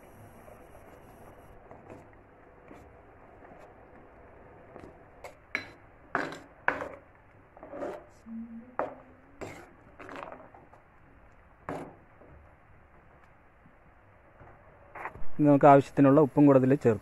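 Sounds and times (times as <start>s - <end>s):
ladle scraping clay pot: 7.6s - 8.2s, 8.8s - 10.6s.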